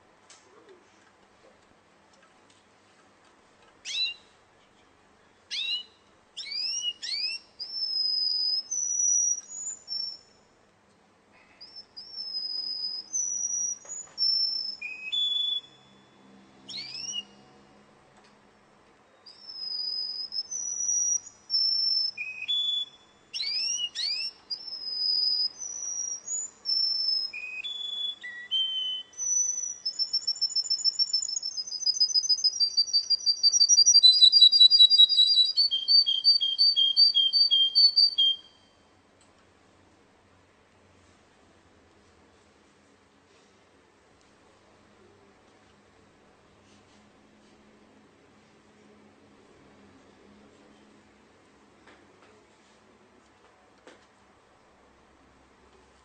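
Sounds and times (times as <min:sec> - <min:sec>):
canary singing: 0:03.8 - 0:04.4, 0:05.5 - 0:10.5, 0:11.6 - 0:17.6, 0:19.1 - 0:38.9.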